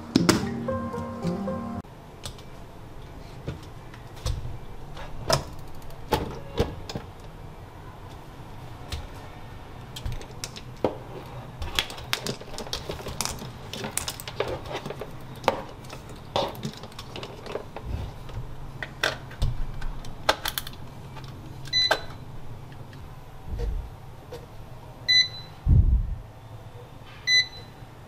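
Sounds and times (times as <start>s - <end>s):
machine beep: 25.1s - 25.6s, 27.3s - 27.8s.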